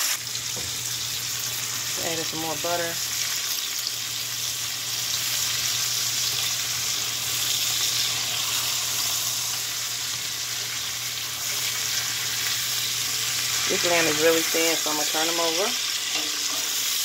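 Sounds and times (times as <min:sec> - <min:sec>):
meat sizzling in a skillet: 0:00.0 - 0:17.0
tongs pushing butter in pan: 0:11.4 - 0:17.0.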